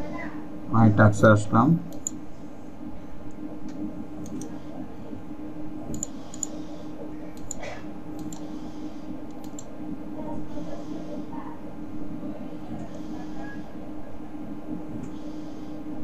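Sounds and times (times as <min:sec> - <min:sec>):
steady low hum: 0:00.0 - 0:16.0
computer mouse clicking: 0:01.9 - 0:02.2, 0:03.2 - 0:04.6, 0:05.9 - 0:06.6, 0:07.4 - 0:07.6, 0:08.2 - 0:08.5, 0:09.3 - 0:09.7.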